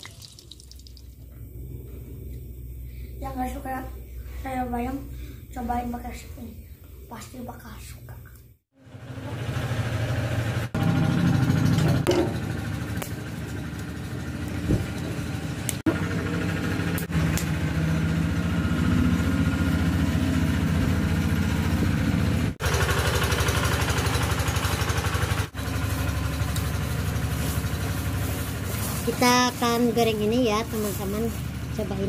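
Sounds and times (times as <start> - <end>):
small engine idling: 8.8 - 32.0.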